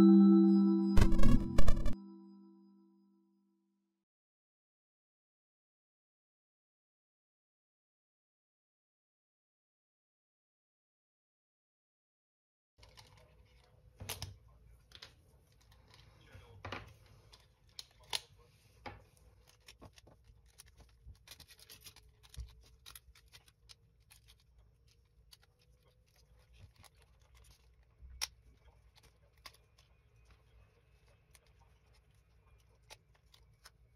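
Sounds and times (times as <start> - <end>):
plastic parts clicking and rustling: 12.8 - 16.1, 19.1 - 30.4.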